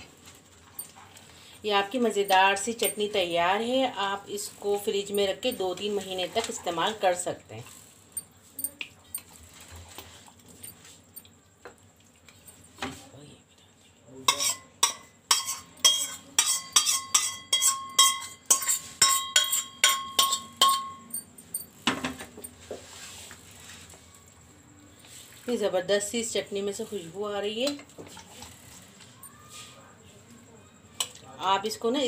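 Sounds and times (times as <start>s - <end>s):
steel bowl clinking and scraping: 1.8s - 3.3s, 4.8s - 6.6s, 14.3s - 21.8s.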